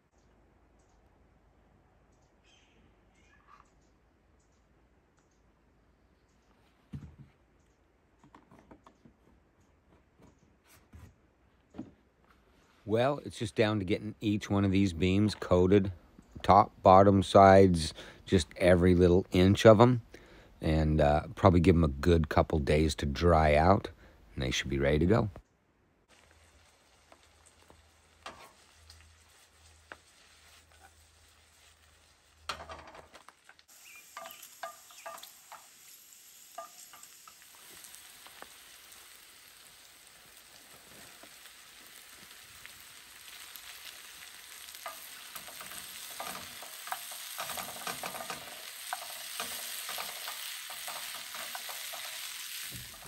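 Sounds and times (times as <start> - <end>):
food stirred in a pan: 26.1 - 53.0
vegetables sizzling in a skillet: 26.1 - 53.0.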